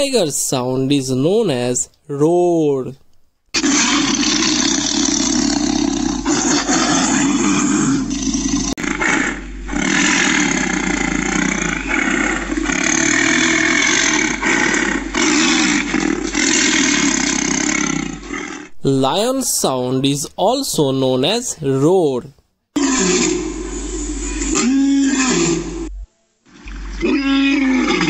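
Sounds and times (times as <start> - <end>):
tiger roaring and growling: 3.6 - 18.8, 22.8 - 26.0, 26.7 - 28.0.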